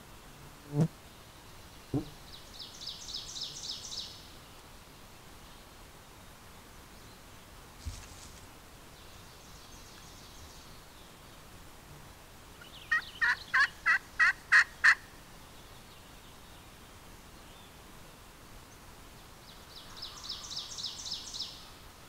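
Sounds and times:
turkey yelps: 12.9 - 15.0.

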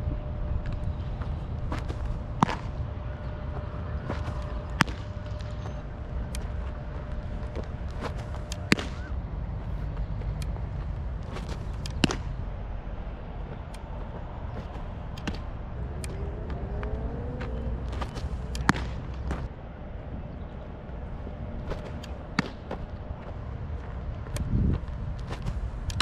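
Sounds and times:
wind rumble on microphone: 0.0 - 26.0
ball smacking into leather mitt: 7.6 - 9.1, 17.4 - 19.5.

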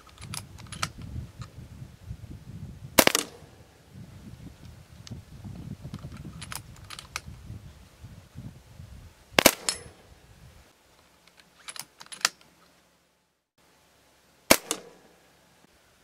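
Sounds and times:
air rifle shots: 3.0 - 3.6, 9.4 - 10.0, 14.5 - 15.1
metallic cocking clicks: 9.4 - 9.9, 11.3 - 12.5.

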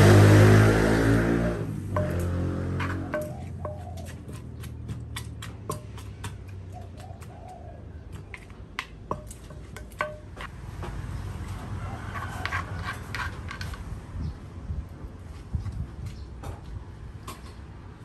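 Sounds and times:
wooden pestle pounding in mortar: 1.9 - 10.6
spoon scraping mortar: 2.0 - 7.3, 12.1 - 14.0.

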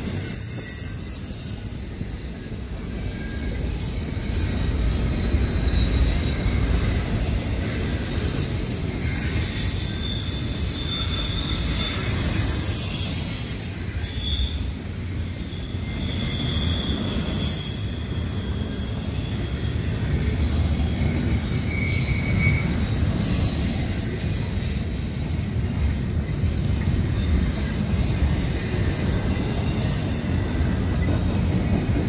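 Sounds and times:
high wheel squeal: 0.0 - 32.0
steel wheels rumbling on rail: 0.0 - 32.0.

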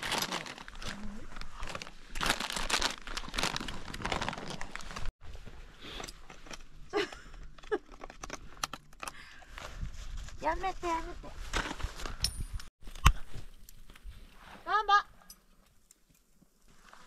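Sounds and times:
plastic snack packet crinkling: 1.6 - 4.9.

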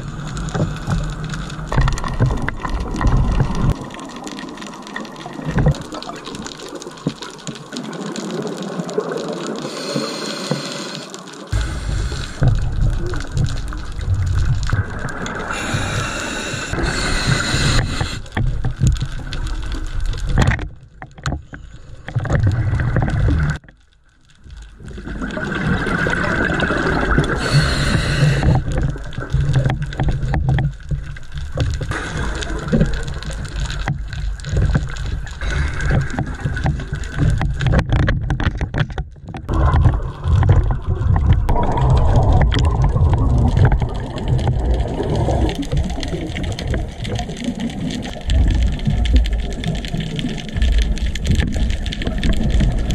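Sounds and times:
exhaled bubbles rumbling underwater: 0.0 - 52.9
hissing regulator inhales: 9.6 - 12.7, 15.5 - 18.3, 27.4 - 28.6.

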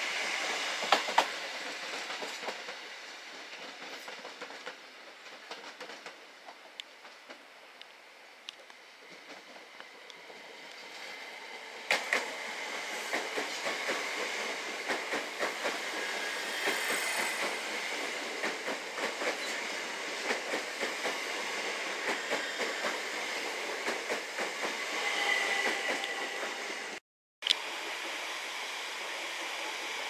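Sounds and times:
train coaches rumbling past: 8.8 - 27.0.

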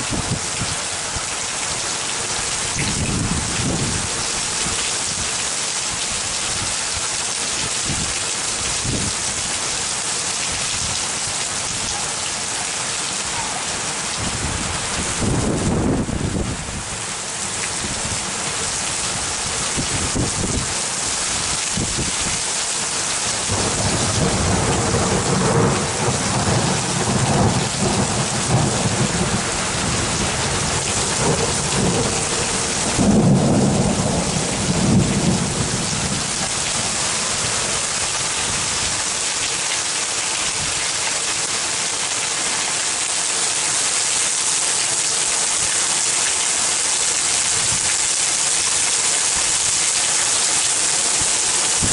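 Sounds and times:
steady rain: 0.0 - 51.9
thunder rumbling: 23.4 - 37.6.

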